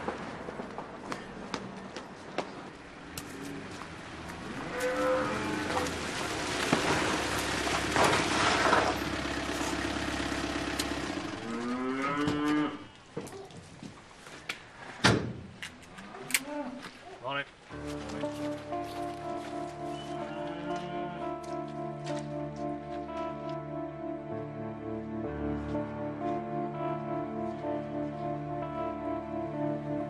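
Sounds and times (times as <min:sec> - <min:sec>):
cattle mooing: 0:04.6 - 0:06.0, 0:11.4 - 0:13.0, 0:20.1 - 0:21.4.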